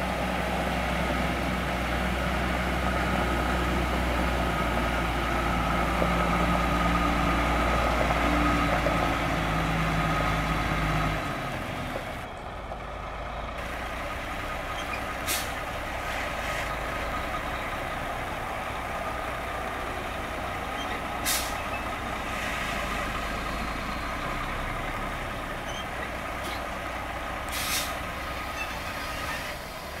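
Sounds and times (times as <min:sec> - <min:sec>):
diesel truck engine idling: 0:00.0 - 0:30.0
air brake hisses: 0:15.2 - 0:16.7, 0:21.2 - 0:23.1, 0:27.5 - 0:28.0.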